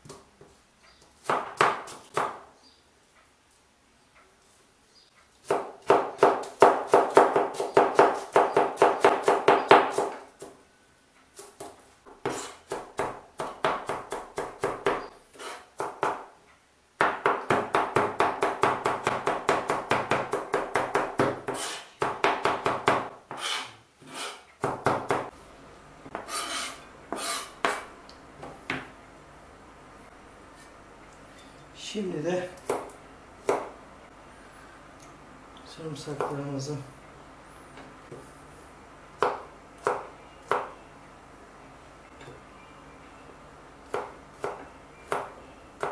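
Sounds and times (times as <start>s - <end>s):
knife chopping onion on board: 1.2s - 2.4s, 5.4s - 10.5s, 11.4s - 16.3s, 17.0s - 25.3s, 26.1s - 27.9s, 43.9s - 45.9s.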